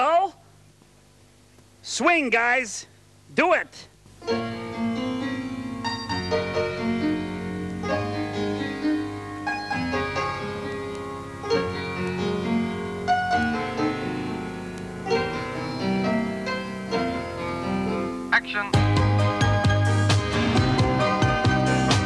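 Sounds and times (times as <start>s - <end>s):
keyboard music: 4.2s - 22.0s
bass line: 18.6s - 22.0s.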